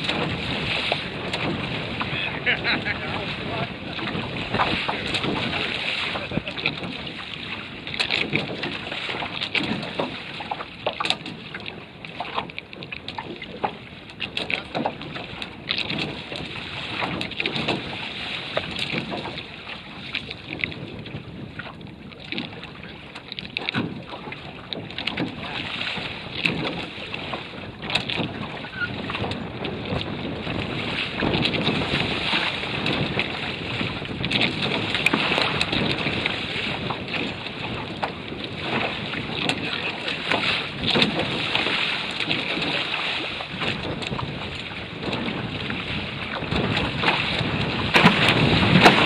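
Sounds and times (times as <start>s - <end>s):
chop slapping hull: 0.0s - 49.0s
water splashing against hulls: 0.0s - 49.0s
wind buffeting microphone: 0.0s - 49.0s.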